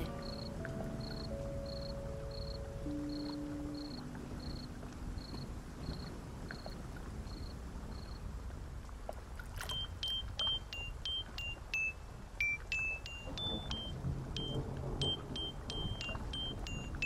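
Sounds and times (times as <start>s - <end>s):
cricket chirping: 0.0s - 8.3s.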